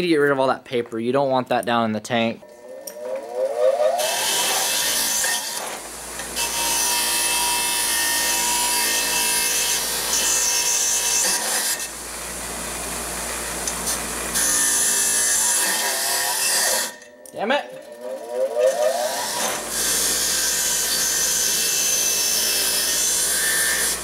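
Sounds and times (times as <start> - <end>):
bench grinder whine: 2.4 - 24.0
metal tube grinding on wheel: 17.7 - 24.0.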